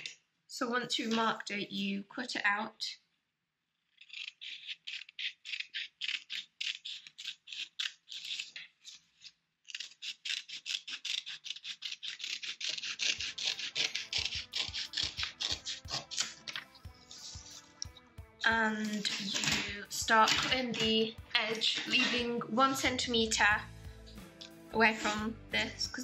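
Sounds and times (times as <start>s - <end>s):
scissors snipping cardstock: 4.0s - 18.0s, 18.9s - 22.3s.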